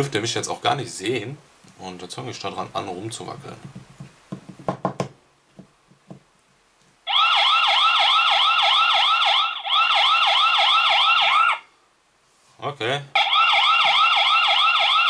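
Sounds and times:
electronic siren alarm: 7.1 - 11.7, 13.2 - 15.0.

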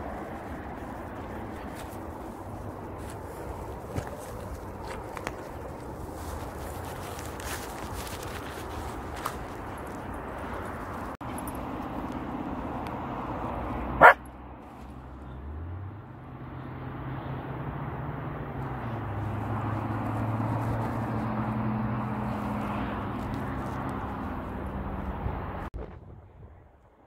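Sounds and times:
dog barking: 14.0 - 14.3.

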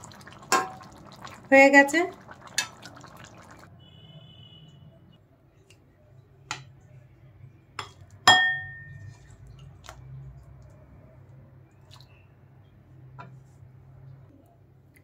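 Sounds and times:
glass bowl clinking: 7.8 - 9.1.

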